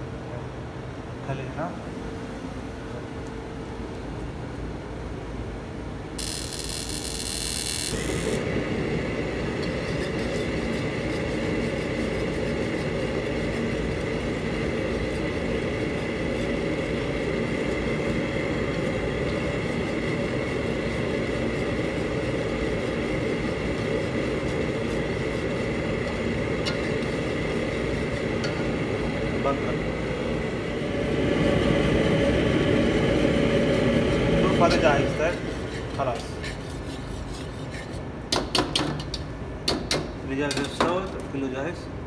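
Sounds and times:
gas range roaring: 4.5 - 40.8
high gas hiss: 6.1 - 36.8.

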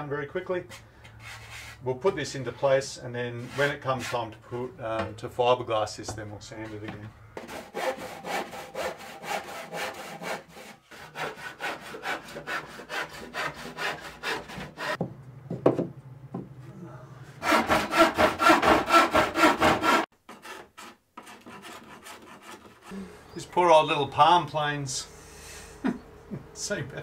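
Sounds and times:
handsaw cutting plywood: 7.4 - 15.0, 17.4 - 22.9.

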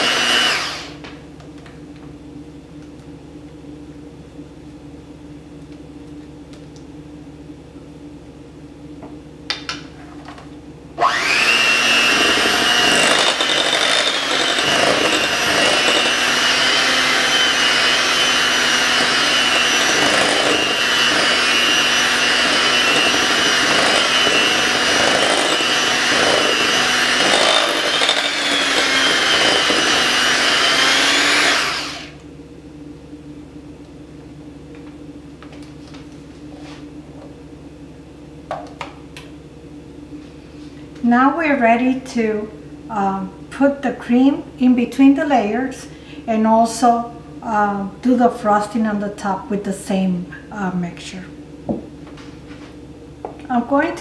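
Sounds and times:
electric hand mixer whine: 0.0 - 1.1, 11.0 - 32.3.

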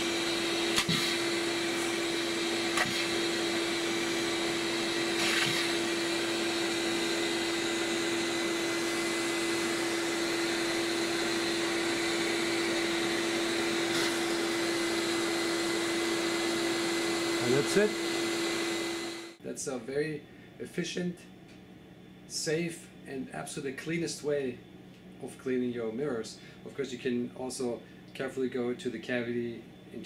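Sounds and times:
vacuum cleaner running: 0.0 - 19.4.

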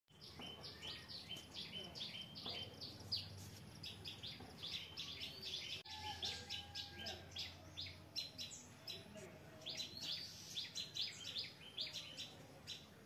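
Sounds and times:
songbirds chirping: 0.1 - 13.0.

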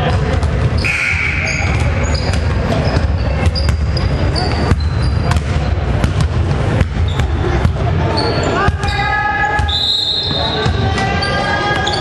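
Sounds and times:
basketball bouncing: 0.0 - 8.0, 8.6 - 9.8
sneakers squeaking: 0.0 - 12.0.

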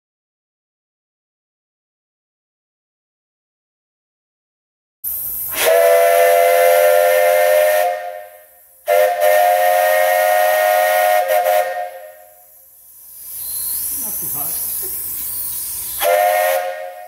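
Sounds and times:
steam hissing: 5.0 - 17.0
steam whistle blasts: 5.5 - 12.7, 16.0 - 17.0.

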